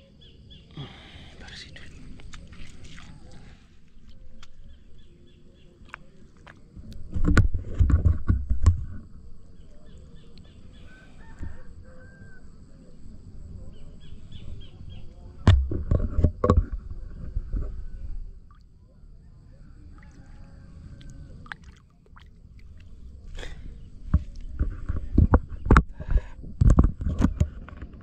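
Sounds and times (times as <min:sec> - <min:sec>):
hand splashing in shallow water: 0:02.2 - 0:04.7, 0:21.0 - 0:24.5
faint bird calls: 0:08.9 - 0:15.4.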